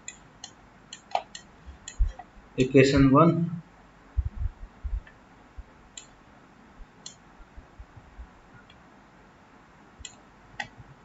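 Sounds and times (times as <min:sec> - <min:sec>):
computer mouse clicks: 0:00.0 - 0:02.3, 0:06.0 - 0:06.2, 0:07.0 - 0:07.2, 0:10.0 - 0:10.8
soft low knocks: 0:04.2 - 0:05.8.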